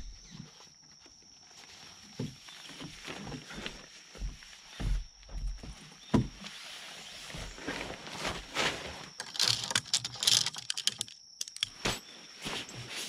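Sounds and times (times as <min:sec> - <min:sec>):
nylon fabric rustling: 0:06.6 - 0:09.2.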